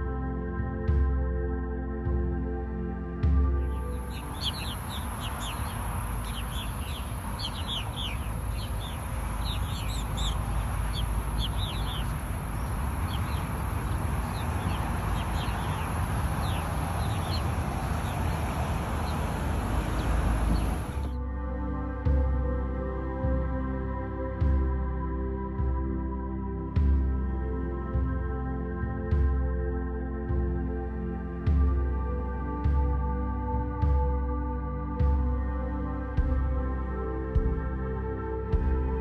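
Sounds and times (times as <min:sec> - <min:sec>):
steady low rumble: 0:03.0 - 0:23.5
birds chirping: 0:03.3 - 0:21.2.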